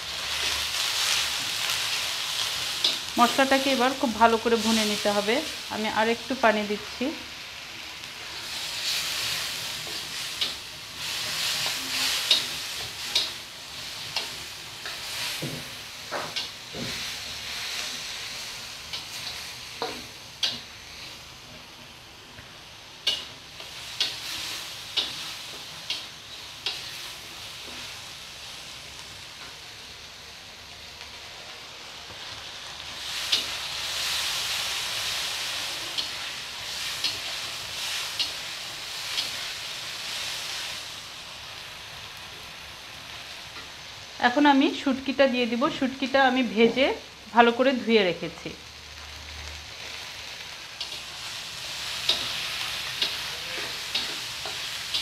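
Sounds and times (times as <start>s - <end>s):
masala sizzling in oil: 0.0s - 55.0s.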